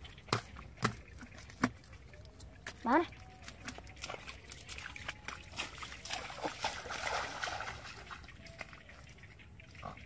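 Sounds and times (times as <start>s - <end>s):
stick prodding wet mud: 0.0s - 7.1s
feet squelching in mud: 0.0s - 8.7s.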